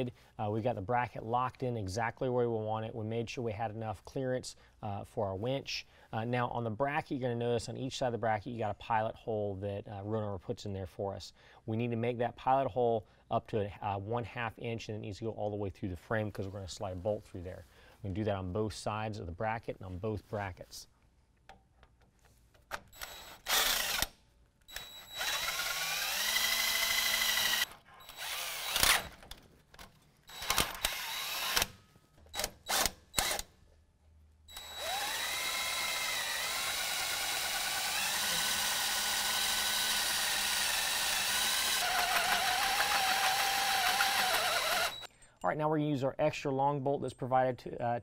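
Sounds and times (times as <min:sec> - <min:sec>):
drill drilling through steel: 0:23.0 - 0:24.1, 0:24.7 - 0:29.1, 0:30.3 - 0:31.7, 0:34.5 - 0:45.1.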